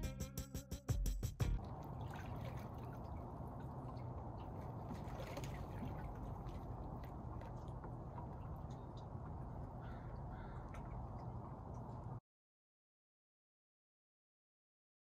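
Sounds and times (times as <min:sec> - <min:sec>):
faint drips and ticks: 0:01.6 - 0:12.2
water lapping and trickling: 0:01.6 - 0:12.2.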